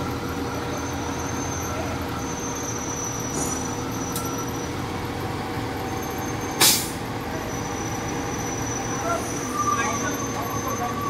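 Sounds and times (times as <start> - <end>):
forklift engines running: 0.0 - 11.0
loud hiss of released air: 6.6 - 7.0.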